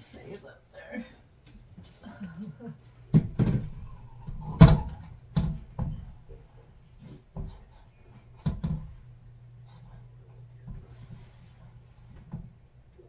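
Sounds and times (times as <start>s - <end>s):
frame knocking against wall: 3.1s - 7.6s, 8.3s - 9.0s.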